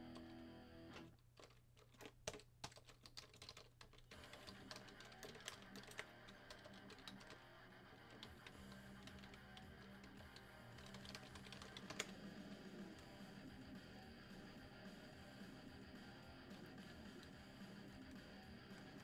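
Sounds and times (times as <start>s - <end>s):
typing on computer keyboard: 1.4s - 12.3s.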